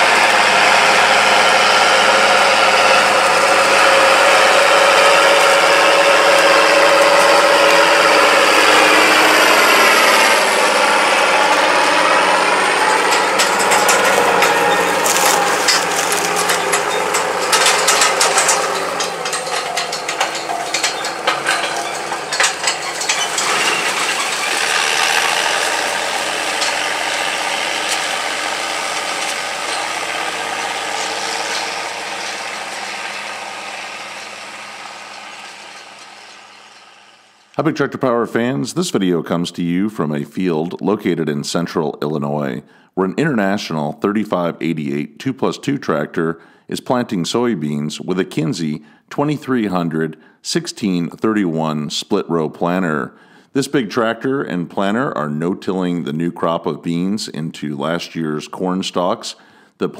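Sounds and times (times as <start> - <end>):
planter clicking and rattling: 0.0 - 37.6
tractor diesel engine passing: 0.0 - 39.0.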